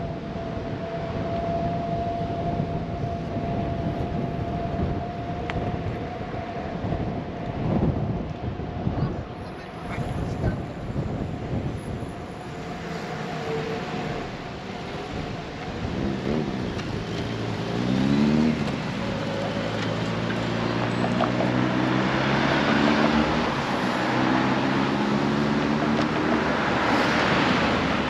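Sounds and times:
street noise: 0.0 - 28.0
engine revving: 15.9 - 28.0.

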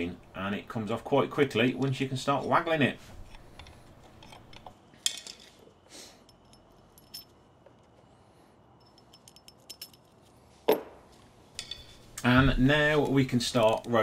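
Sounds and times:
metal tools clinking: 2.3 - 5.6, 6.2 - 8.0, 8.7 - 10.8, 11.5 - 12.2.

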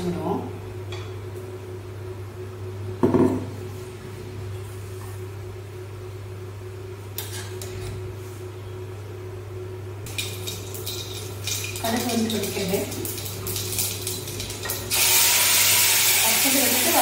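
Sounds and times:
steady low hum: 0.0 - 15.0
mustard seeds spluttering in oil: 10.1 - 17.0.

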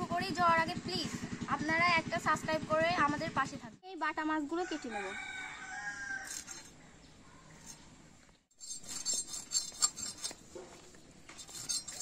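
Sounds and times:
fish scraping against blade: 6.2 - 6.8, 8.6 - 12.0.

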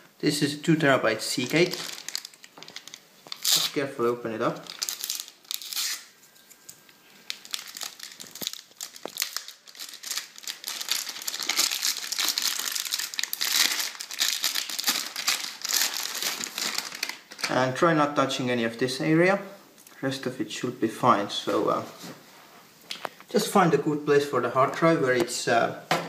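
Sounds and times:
plastic bag crinkling: 1.2 - 17.7.

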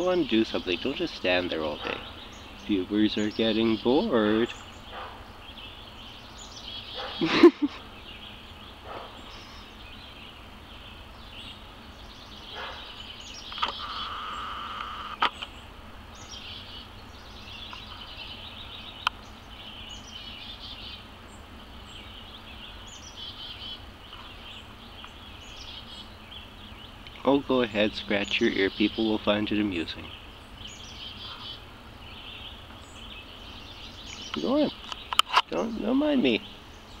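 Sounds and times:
birds chirping and calling: 0.0 - 37.0
steady high drone: 21.3 - 33.9.

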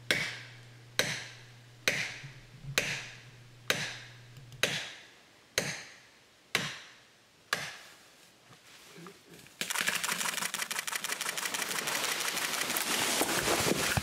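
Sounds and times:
wedge pounded with ringing knocks: 0.1 - 0.4, 1.0 - 3.1, 3.7 - 5.0, 5.6 - 6.9, 7.5 - 7.8.

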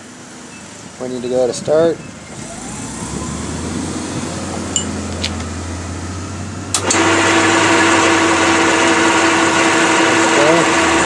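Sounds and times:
bandsaw cutting steel: 6.8 - 11.0.

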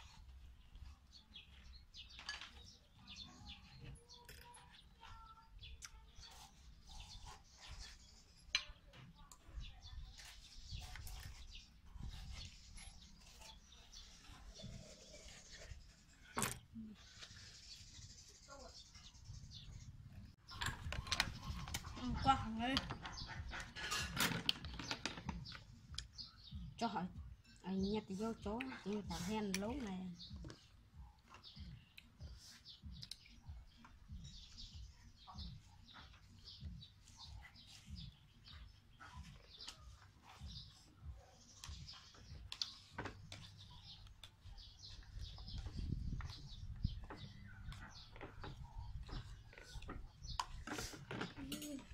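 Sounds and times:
birds chirping: 0.0 - 51.9
spoons scraping watermelon: 5.8 - 8.8, 9.5 - 19.3.

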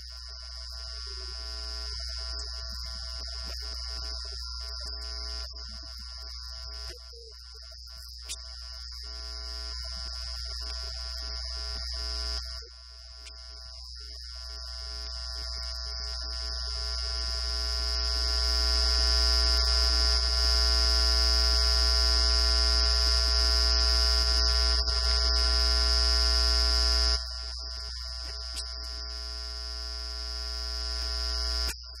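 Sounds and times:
mains hum: 0.0 - 32.0
high whine: 23.7 - 32.0.

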